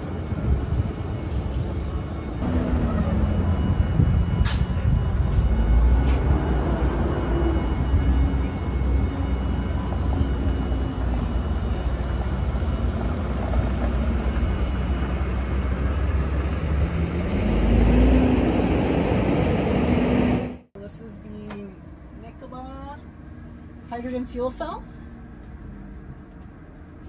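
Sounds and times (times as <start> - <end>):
electric truck hum: 0.0 - 20.7
heavy low rumble: 0.0 - 20.7.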